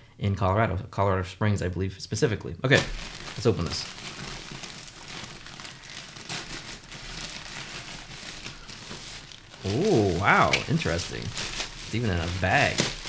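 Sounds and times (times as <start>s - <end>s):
plastic bag crinkling: 2.7s - 13.0s.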